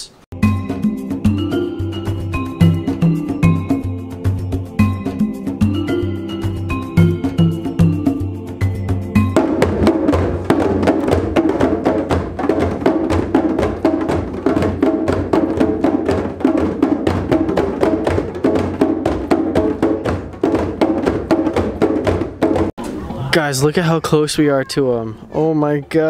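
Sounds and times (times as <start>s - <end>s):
hand drums playing fast rhythm: 4.8s - 22.8s.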